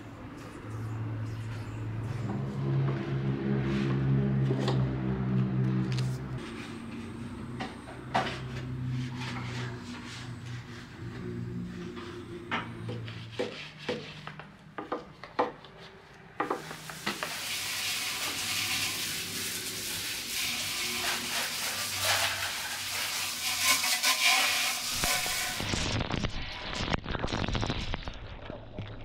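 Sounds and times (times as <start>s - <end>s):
hose nozzle spraying water: 16.6s - 25.8s.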